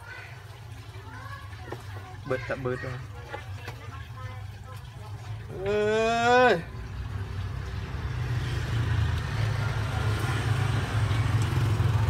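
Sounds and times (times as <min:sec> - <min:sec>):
engine idling: 0:05.0 - 0:12.0.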